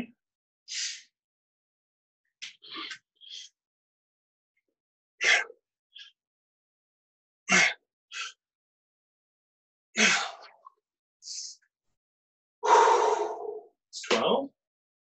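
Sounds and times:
man breathing hard: 10.0s - 10.5s, 12.6s - 13.6s.

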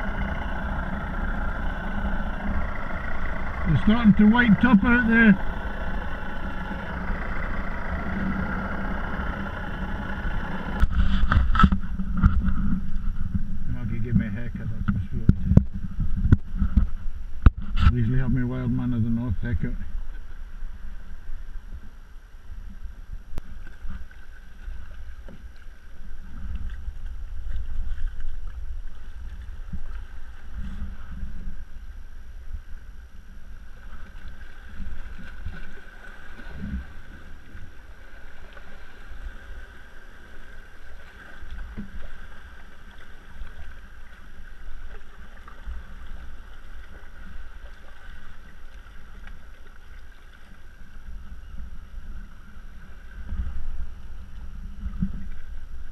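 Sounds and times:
wind buffeting microphone: 0.0s - 21.9s
water lapping against kayak hull: 0.0s - 55.9s.

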